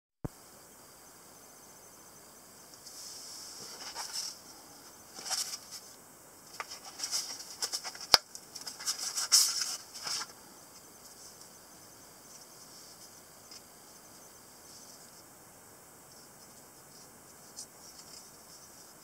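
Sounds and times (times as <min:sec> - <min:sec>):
nylon sheath rustling and scraping: 0:02.9 - 0:04.4, 0:05.1 - 0:05.9, 0:06.5 - 0:10.4.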